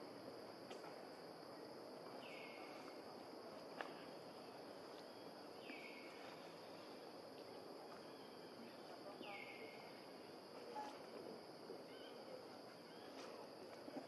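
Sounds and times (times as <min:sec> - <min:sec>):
faint click: 0:00.7 - 0:00.9.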